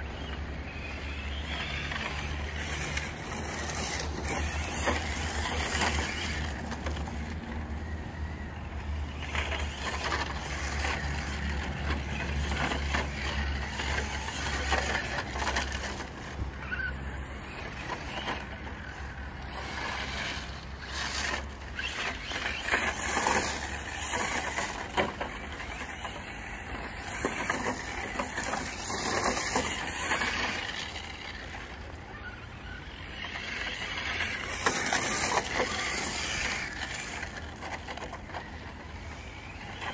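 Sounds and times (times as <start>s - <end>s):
rc truck drivetrain whirring: 0.0s - 39.9s
tyres crunching on gravel: 0.2s - 7.7s, 9.0s - 31.9s, 32.8s - 39.9s.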